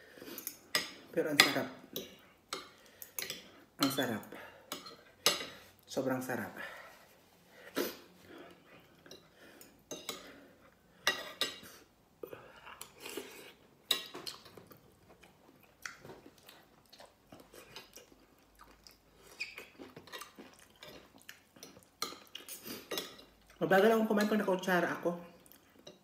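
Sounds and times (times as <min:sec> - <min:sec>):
person chewing: 0:11.4 - 0:23.6.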